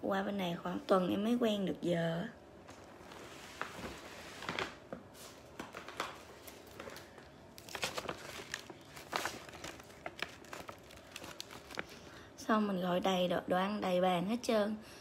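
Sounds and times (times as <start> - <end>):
paper bag crinkling: 2.7 - 12.2.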